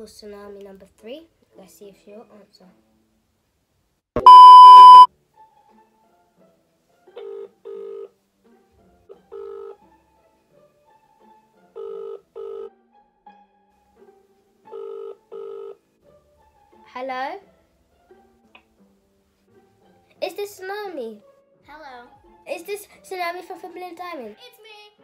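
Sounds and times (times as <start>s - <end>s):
high test-tone beep: 4.2s - 5.1s
phone ringback tone: 4.2s - 5.1s.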